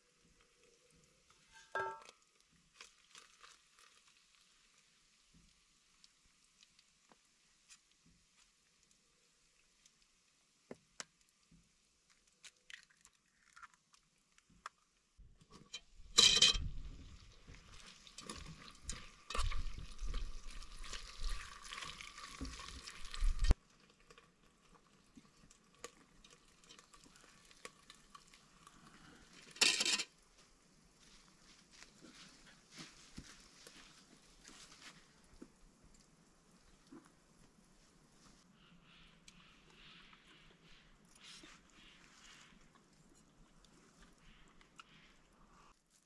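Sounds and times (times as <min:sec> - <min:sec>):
utensil knocking against a pot: 0:01.8 - 0:02.1.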